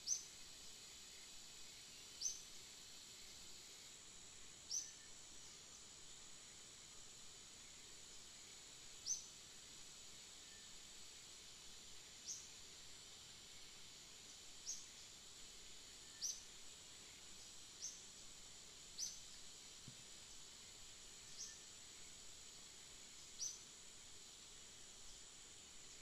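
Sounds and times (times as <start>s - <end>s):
high insect drone: 0.0s - 26.0s.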